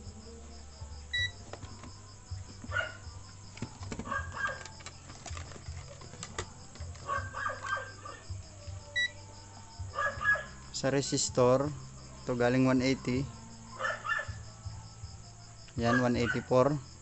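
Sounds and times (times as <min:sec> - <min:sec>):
multimeter beep: 0:01.1 - 0:01.4, 0:09.0 - 0:09.2.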